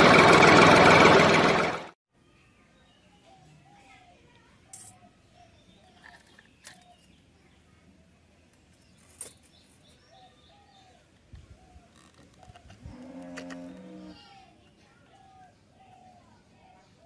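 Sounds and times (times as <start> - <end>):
sharp clicks of parts handled: 4.7 - 5.0, 6.0 - 7.1.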